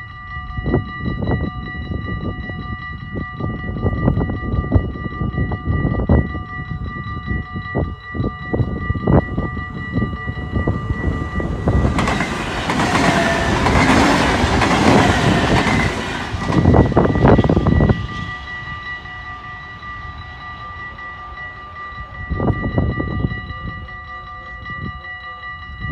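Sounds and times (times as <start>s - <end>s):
wind buffeting microphone: 0.0s - 25.0s, 25.6s - 25.9s
level crossing warning bells: 0.0s - 25.9s.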